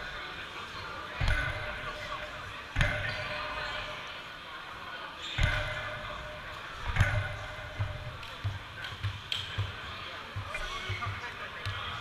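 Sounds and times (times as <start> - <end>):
balls thumping on hall floor: 1.2 - 4.0, 5.4 - 12.0.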